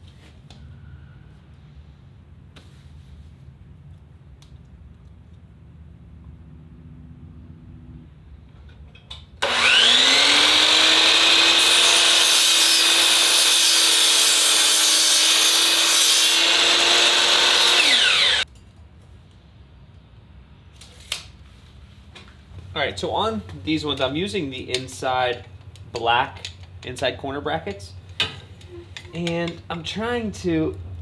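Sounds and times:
miter saw cutting metal: 0:09.4 - 0:18.4.

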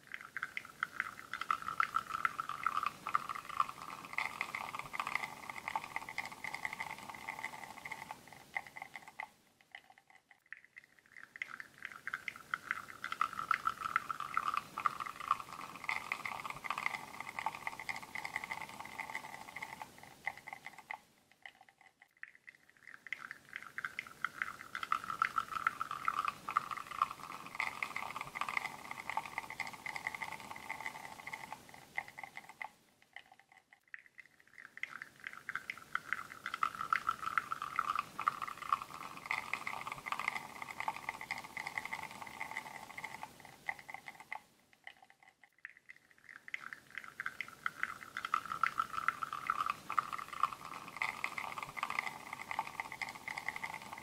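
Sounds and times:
coffee streaming and spattering: 0:00.0 - 0:54.0
espresso machine pump running: 0:01.4 - 0:07.6, 0:25.0 - 0:30.4.

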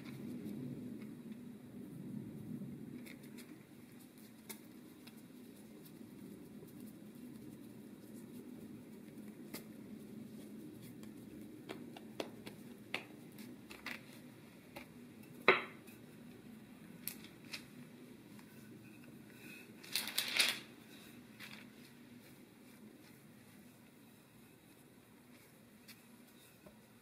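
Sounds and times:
dough being kneaded by hand: 0:00.0 - 0:27.0
low steady hum: 0:00.0 - 0:27.0
rolling pin rolling over dough: 0:02.9 - 0:19.9, 0:20.7 - 0:27.0.

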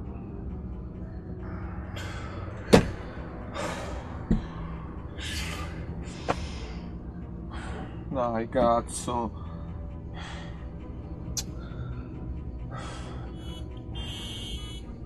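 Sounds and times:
man breathing hard: 0:00.7 - 0:08.1, 0:09.3 - 0:14.0
hands thumping inside a car: 0:02.7 - 0:03.0.

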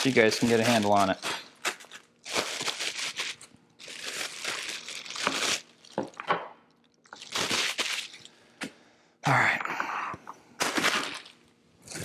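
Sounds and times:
plastic packaging crinkling: 0:00.0 - 0:08.4, 0:10.6 - 0:11.5.

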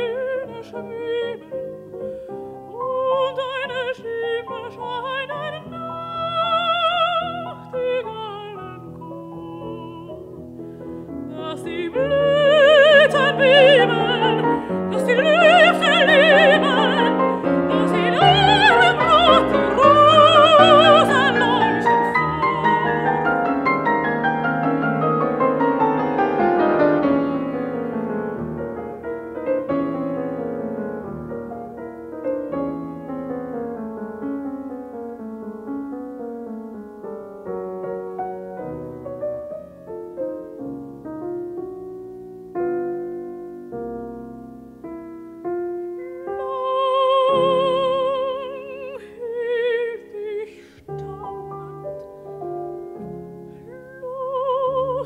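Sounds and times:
woman singing with vibrato: 0:00.0 - 0:01.7, 0:02.7 - 0:10.4, 0:11.2 - 0:24.0, 0:46.0 - 0:51.8, 0:53.7 - 0:55.0
piano playing: 0:00.0 - 0:55.0.

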